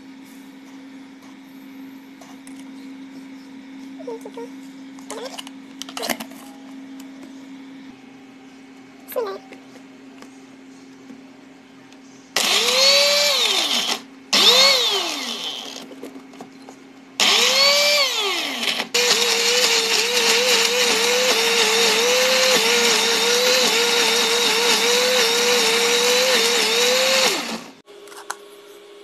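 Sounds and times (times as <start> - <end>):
blender motor whining: 12.4 - 15.9, 17.2 - 27.8.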